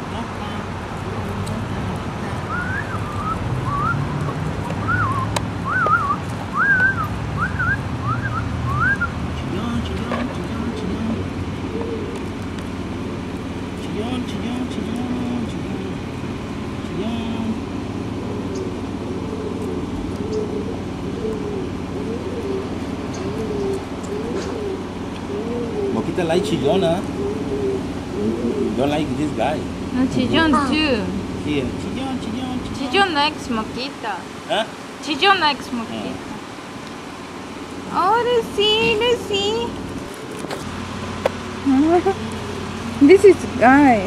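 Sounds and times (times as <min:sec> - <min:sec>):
animal calls rising and falling: 0:02.4 - 0:09.2, 0:18.2 - 0:28.8.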